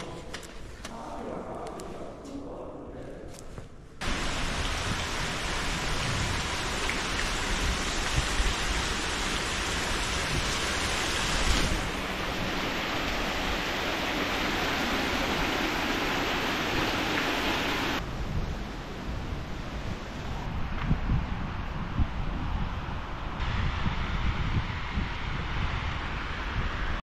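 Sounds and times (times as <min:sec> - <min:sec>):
water rushing over pond edge: 0:04.0 - 0:18.0.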